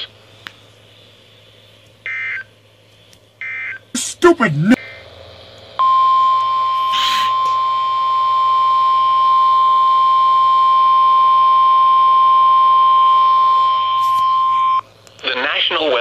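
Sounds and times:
steady alarm tone: 5.8 - 14.8.

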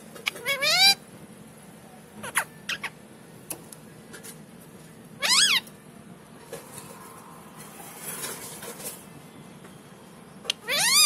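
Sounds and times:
parakeet call: 0.2 - 1.0, 2.2 - 3.0, 5.2 - 5.7, 10.5 - 11.0.

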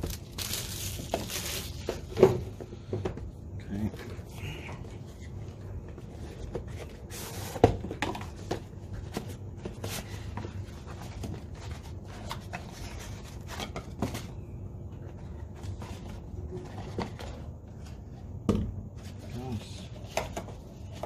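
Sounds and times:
rustling handling of box: 0.0 - 2.8.

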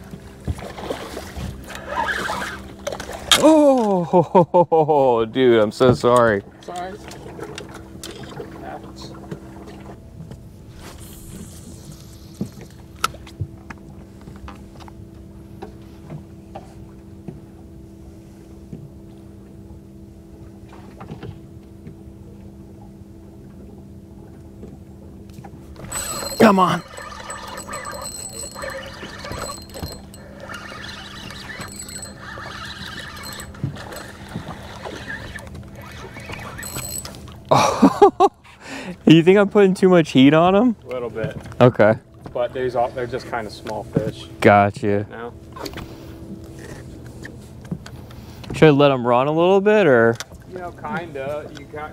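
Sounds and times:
steady low hum: 0.0 - 51.9
fishing line hissing off reel: 1.7 - 2.7, 10.7 - 12.8, 25.8 - 37.1
reel winding: 25.8 - 37.4.

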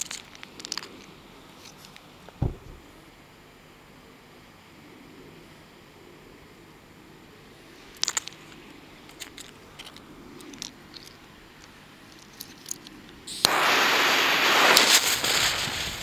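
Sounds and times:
firecracker fuse hissing: 13.3 - 16.0.

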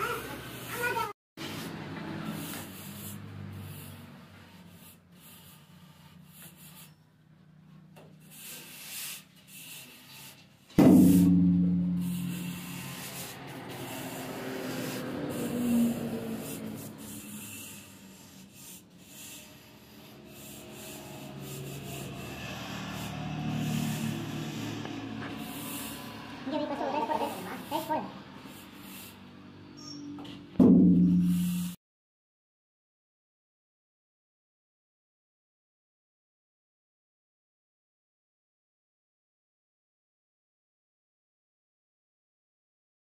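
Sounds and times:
sudden loud sound: 10.8 - 13.5.

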